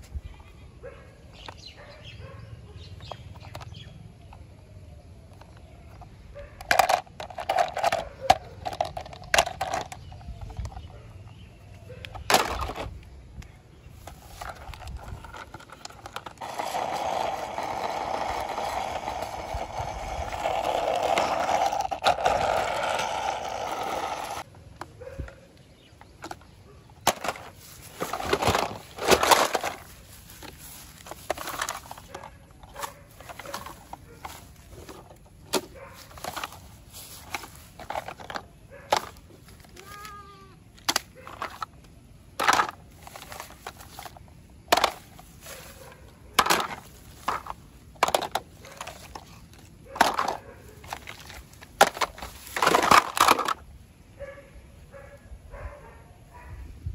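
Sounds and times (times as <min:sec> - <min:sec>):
toy wheels rolling on concrete: 0:02.9 - 0:04.3, 0:05.3 - 0:11.4, 0:12.1 - 0:13.0, 0:14.0 - 0:25.1, 0:26.1 - 0:54.3
plastic toy clicks and knocks: 0:05.3 - 0:10.8, 0:12.0 - 0:13.0, 0:14.0 - 0:24.4, 0:26.1 - 0:29.8, 0:40.8 - 0:45.1, 0:46.4 - 0:49.3, 0:49.9 - 0:53.6.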